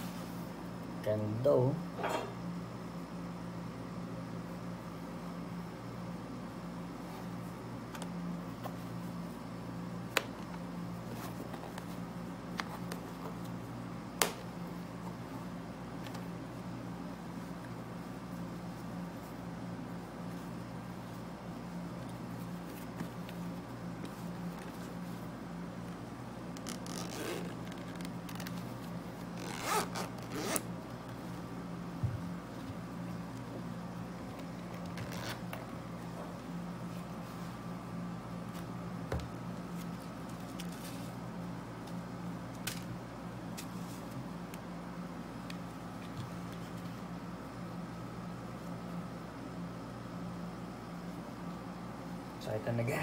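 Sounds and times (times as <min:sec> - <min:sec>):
steady low hum: 0:00.0 - 0:53.0
zipper pulled open: 0:26.6 - 0:28.5, 0:29.3 - 0:30.7, 0:34.8 - 0:35.4.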